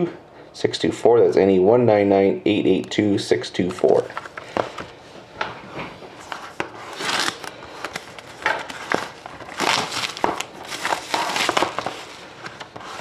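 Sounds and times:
plastic shrink wrap crinkling: 6.2s - 13.0s.

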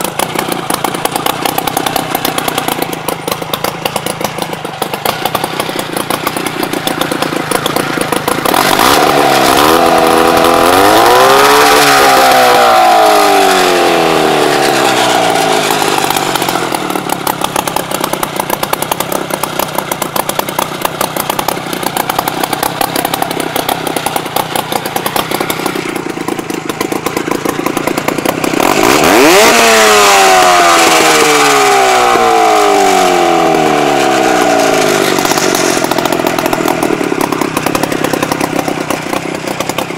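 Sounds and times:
snowmobile engine idling and revving: 0.0s - 39.9s.

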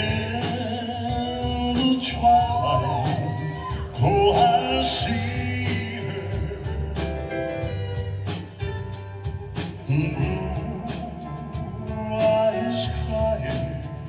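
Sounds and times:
man singing: 0.0s - 7.3s, 9.7s - 14.0s
drums beating: 0.0s - 14.0s
live band playing country ballad: 0.0s - 14.0s.

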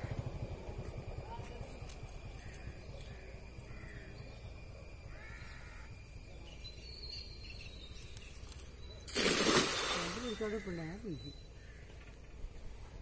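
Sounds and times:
low background rumble: 0.0s - 8.0s
bird calling: 5.1s - 12.6s.

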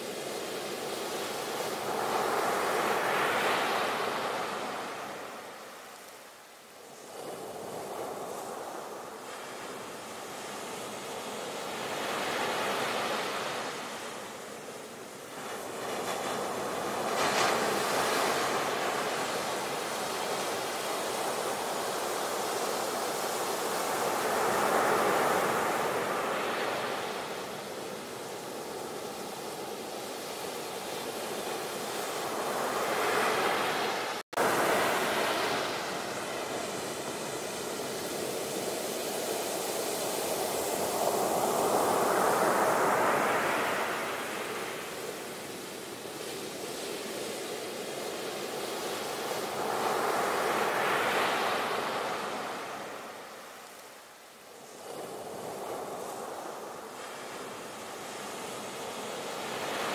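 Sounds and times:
sea waves breaking: 15.3s - 47.2s.

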